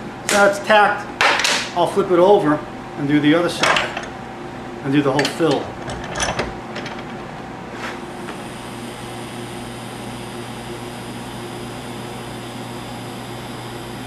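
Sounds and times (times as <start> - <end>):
welding arc humming and hissing: 6.6 - 14.0.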